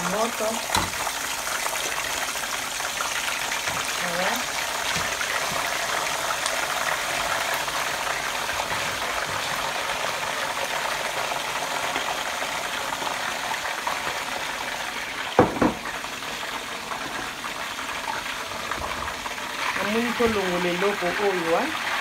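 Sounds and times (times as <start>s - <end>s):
chicken deep-frying in oil: 0.0s - 22.0s
sharp knocks: 15.4s - 15.8s.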